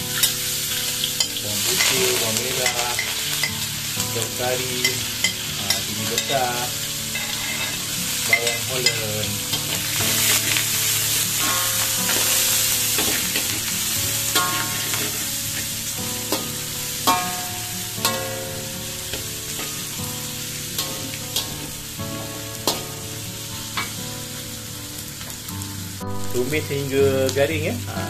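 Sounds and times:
aromatics sizzling in hot oil: 0.0 - 28.0
metal spatula scraping wok: 0.2 - 24.0
spatula knocking wok: 7.1 - 24.0.

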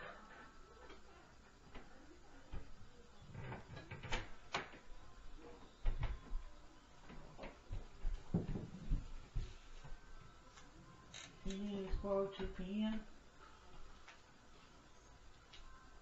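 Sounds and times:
footsteps thudding through ceiling: 5.8 - 10.1.

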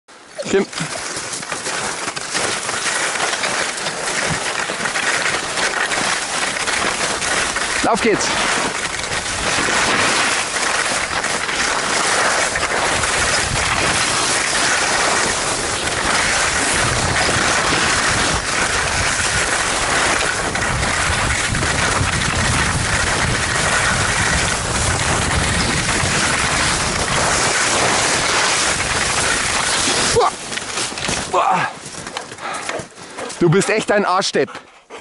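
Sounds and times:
skis hissing over snow: 0.5 - 31.3
wind on microphone: 12.4 - 30.2.

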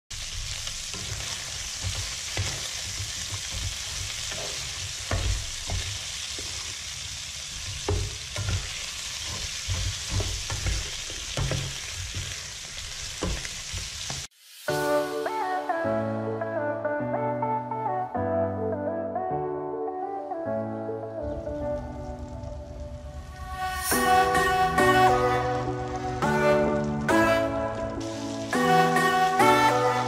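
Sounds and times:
chicken sizzling in a frying pan: 0.1 - 15.4, 21.3 - 30.0
spatula scraping a pan: 0.8 - 14.3.

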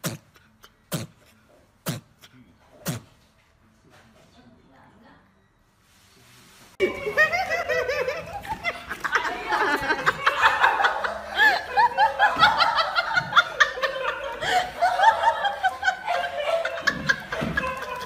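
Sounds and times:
people laughing: 6.8 - 18.0.

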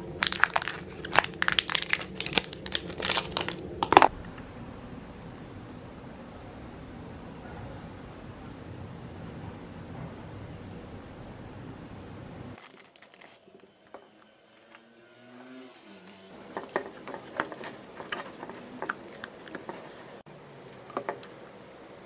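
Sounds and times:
low background rumble: 0.0 - 12.6
utensil spreading and scraping plate: 16.4 - 20.2.

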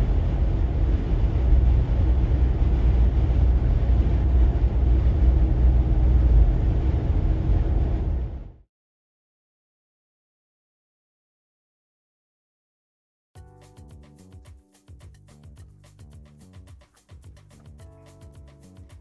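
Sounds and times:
low vehicle rumble: 0.0 - 8.6.

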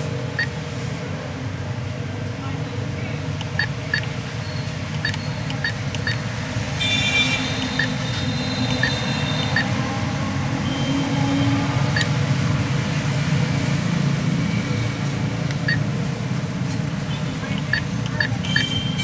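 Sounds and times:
keypad beeps: 0.4 - 0.6, 3.3 - 6.4, 7.6 - 9.8, 11.9 - 12.2, 15.5 - 15.9, 17.4 - 19.0.

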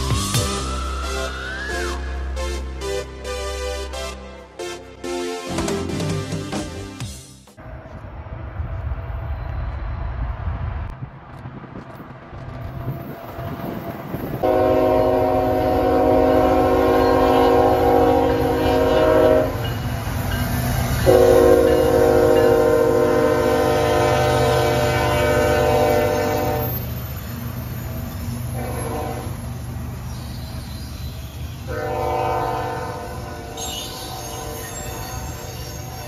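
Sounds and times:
diesel locomotive rumble: 7.6 - 36.0
train air horn blasts: 14.4 - 19.7, 21.0 - 26.8, 28.5 - 29.4, 31.6 - 34.8.

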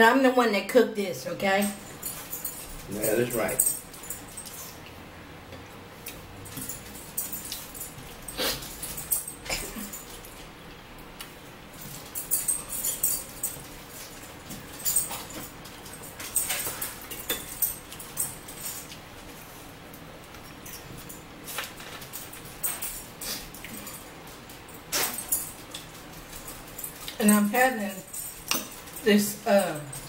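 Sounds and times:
forks clicking on plates: 11.2 - 19.0, 20.3 - 30.0
chewing: 20.3 - 27.2.

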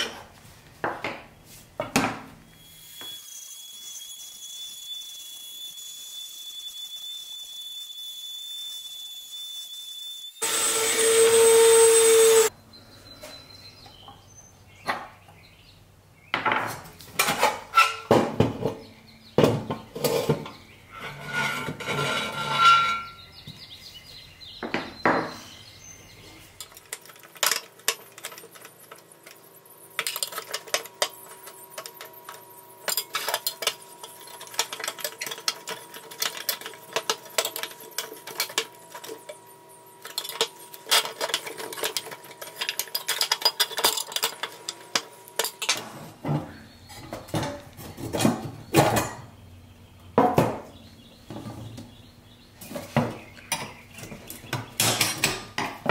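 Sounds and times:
sheet metal toy clinking and rattling: 26.6 - 39.4, 40.0 - 45.8.

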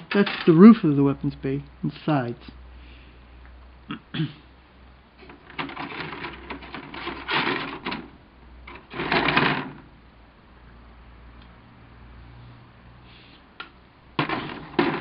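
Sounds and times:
plastic pieces rattling on cardboard: 5.3 - 8.1, 8.7 - 9.9, 14.2 - 15.0.

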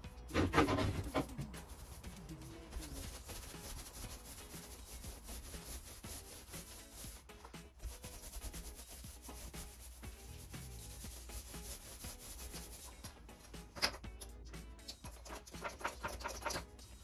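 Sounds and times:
paint roller rubbing on wall: 0.3 - 13.0.

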